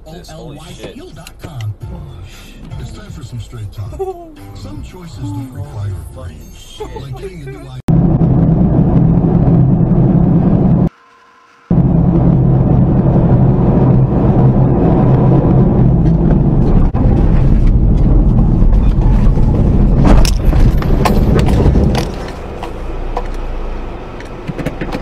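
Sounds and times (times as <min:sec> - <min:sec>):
car rumble: 0:00.0 - 0:10.9, 0:11.7 - 0:25.0
branches cracking and scraping car: 0:17.0 - 0:23.4.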